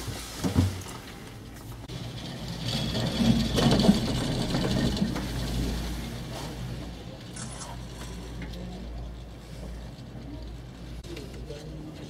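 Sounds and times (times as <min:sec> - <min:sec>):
cable car mechanical hum: 0:00.8 - 0:12.0
clattering: 0:01.8 - 0:07.3.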